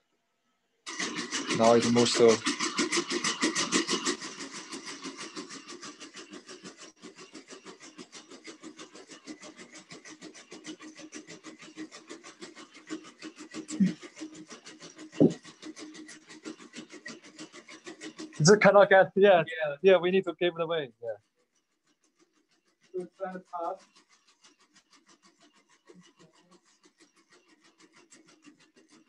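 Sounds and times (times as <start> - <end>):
robot dog feet pattering: 13.6 - 19.0.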